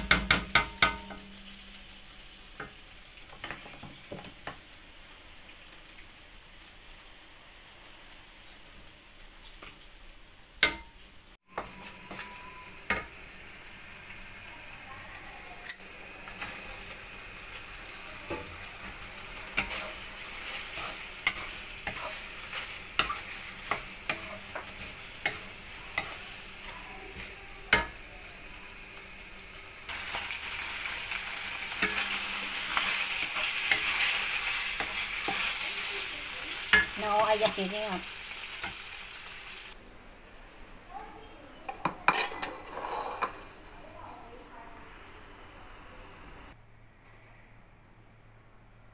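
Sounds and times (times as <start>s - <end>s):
wooden spatula knocking against pan: 0.0s - 1.2s
sauce sizzling in a wok: 0.0s - 39.8s.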